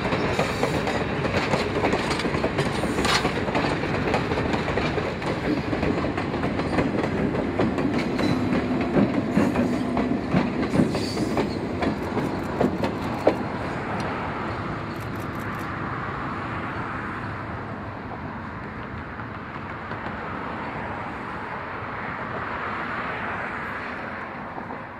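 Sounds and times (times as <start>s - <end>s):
train wheels clicking over rail joints: 0.0s - 14.2s
train rumble: 0.0s - 24.9s.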